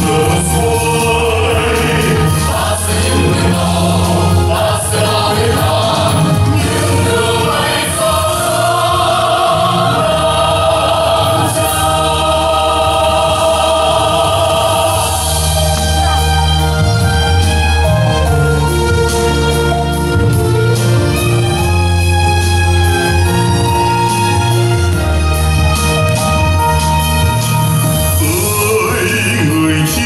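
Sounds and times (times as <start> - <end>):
mixed chorus singing: 0.0 - 16.9
musical backing: 0.0 - 30.0.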